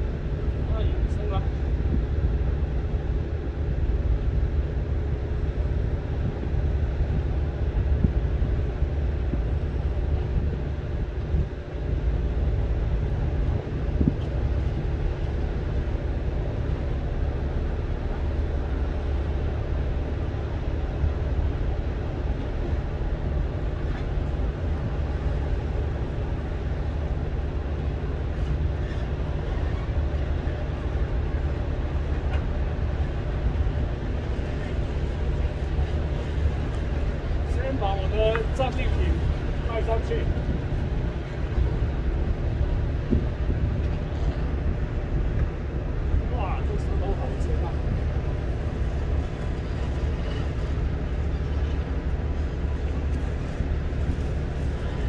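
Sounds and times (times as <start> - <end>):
wind buffeting microphone: 0.0 - 55.0
surf on rocky shore: 11.9 - 55.0.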